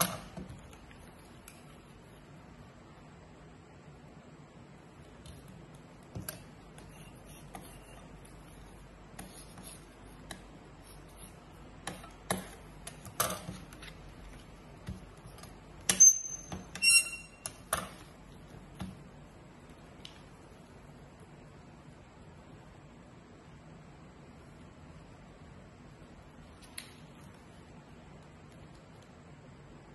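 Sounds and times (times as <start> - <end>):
brief squeak: 15.9 - 17.5.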